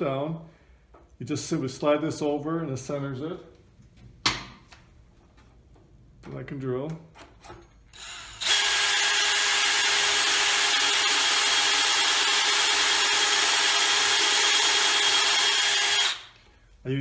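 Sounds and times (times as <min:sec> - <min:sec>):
drill boring into wood: 0:07.9 - 0:16.3.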